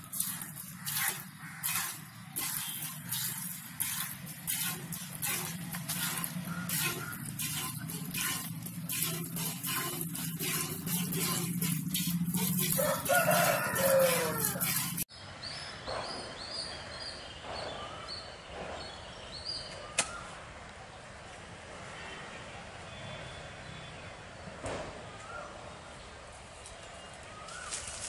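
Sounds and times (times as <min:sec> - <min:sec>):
milk squirting into metal pail: 0:00.0 - 0:15.1
rooster crowing: 0:12.7 - 0:15.0.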